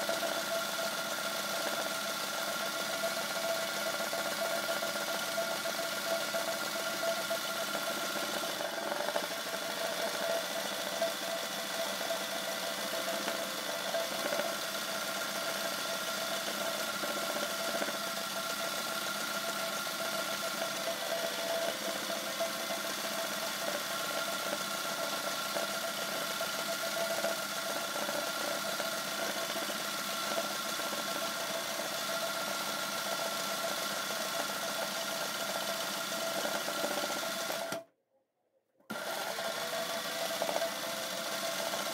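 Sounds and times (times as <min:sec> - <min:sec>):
sewing machine running: 0:00.0 - 0:37.8, 0:38.9 - 0:41.9.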